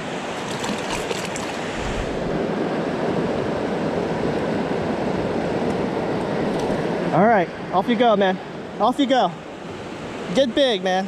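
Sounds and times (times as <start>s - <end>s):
stream flowing over rocks: 0.0s - 2.5s.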